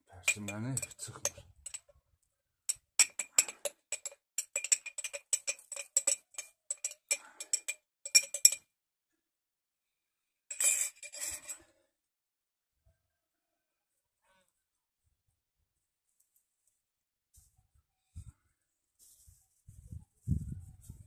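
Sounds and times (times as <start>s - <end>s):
glass jar clinking and rattling: 0.1s - 1.9s, 2.7s - 8.6s, 10.5s - 11.7s.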